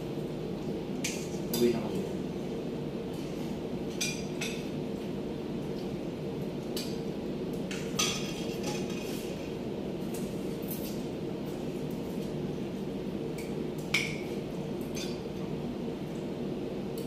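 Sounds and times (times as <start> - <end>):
steady low hum: 0.0 - 17.0
cutlery clinking against plates: 7.7 - 9.2, 14.9 - 15.2.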